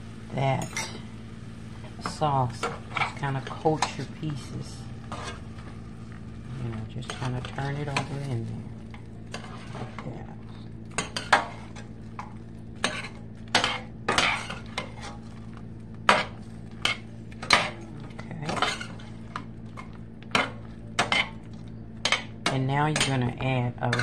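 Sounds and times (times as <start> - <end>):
utensil scraping a skillet: 2.0 - 15.5.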